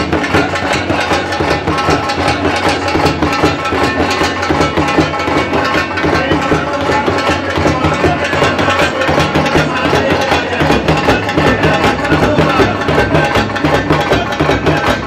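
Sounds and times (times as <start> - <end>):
kettle drums beaten rapidly: 0.0 - 15.0.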